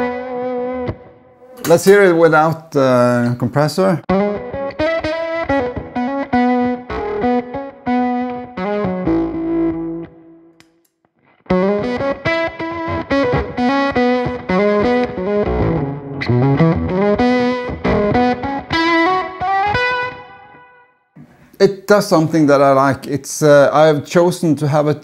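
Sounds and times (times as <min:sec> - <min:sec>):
distorted electric guitar: 0:04.1 - 0:10.2, 0:11.3 - 0:21.4.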